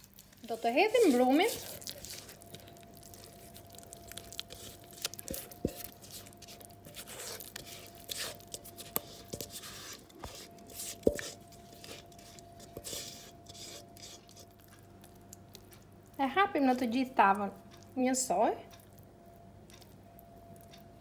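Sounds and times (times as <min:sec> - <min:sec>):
spatula scraping batter: 0:00.0 - 0:15.7
faint steady hum: 0:00.0 - 0:21.0.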